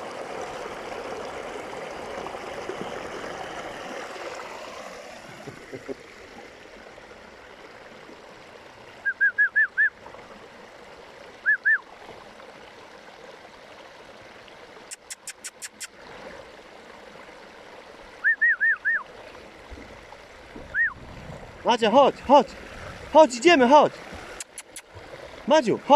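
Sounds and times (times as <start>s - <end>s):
stream flowing over stones: 0.0s - 25.9s.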